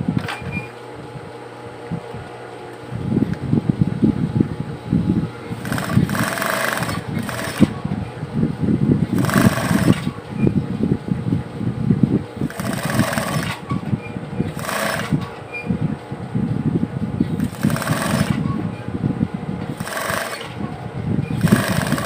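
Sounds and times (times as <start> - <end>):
sewing machine stitching: 5.6 - 7.7, 9.2 - 10.1, 12.4 - 13.7, 14.5 - 15.3, 17.4 - 18.5, 19.7 - 20.6, 21.3 - 22.0.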